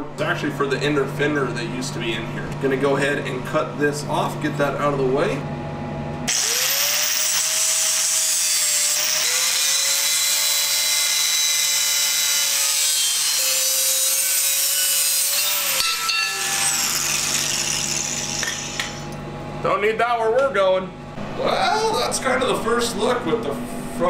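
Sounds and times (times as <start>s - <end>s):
angle grinder cutting steel: 6.3s - 19.2s
grinder disc spinning down: 15.3s - 19.1s.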